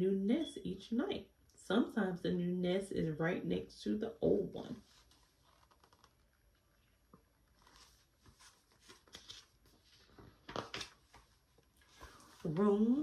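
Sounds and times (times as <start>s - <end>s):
book pages rustling: 4.7s - 13.0s.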